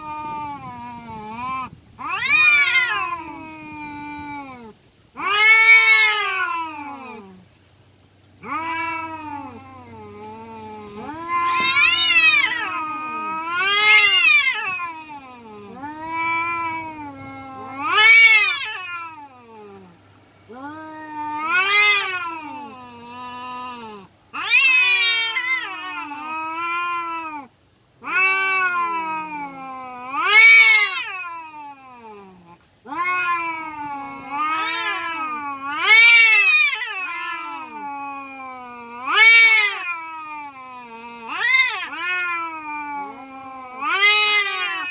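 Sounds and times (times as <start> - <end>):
cats yowling in a fight: 0.0 - 7.5, 8.4 - 44.9.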